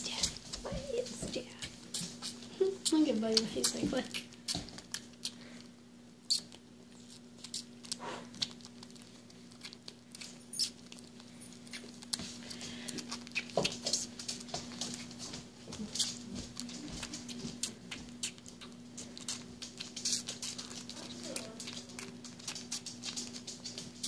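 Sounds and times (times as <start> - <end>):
steady low hum: 0.0 - 24.0
squirrel sucking clicks: 6.2 - 8.9.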